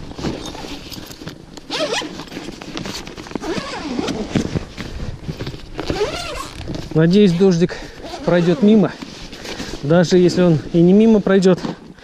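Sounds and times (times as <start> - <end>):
zipper pulled open: 0.2 - 9.1.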